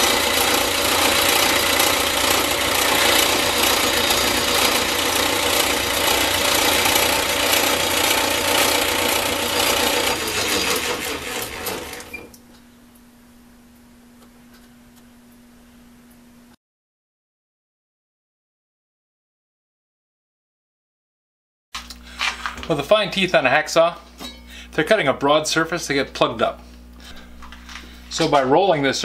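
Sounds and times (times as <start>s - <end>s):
lathe winding down: 0.0s - 12.4s
metal lathe running: 0.0s - 12.4s
faint steady hum: 12.3s - 16.6s, 21.8s - 29.0s.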